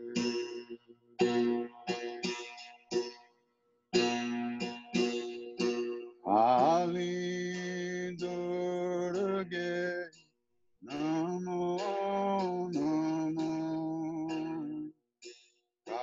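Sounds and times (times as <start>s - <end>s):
man singing devotional chant: 6.3s - 10.1s, 10.9s - 14.9s.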